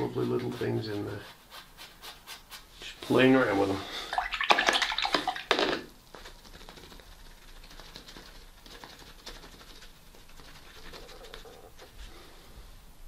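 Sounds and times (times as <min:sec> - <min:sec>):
paintbrush scratching and dabbing: 0:00.0 - 0:03.3, 0:06.1 - 0:12.2.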